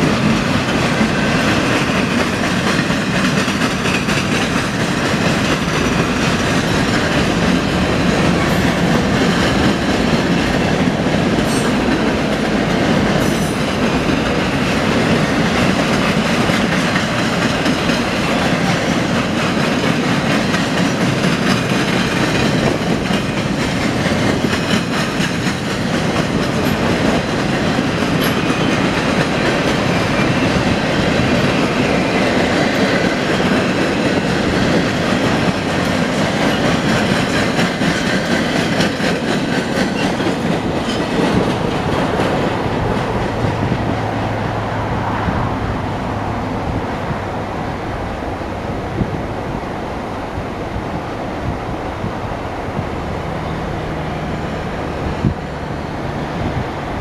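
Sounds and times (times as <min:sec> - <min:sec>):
train wheels clacking on rails: 0:00.0 - 0:47.1
road traffic engine hum: 0:40.6 - 0:57.0.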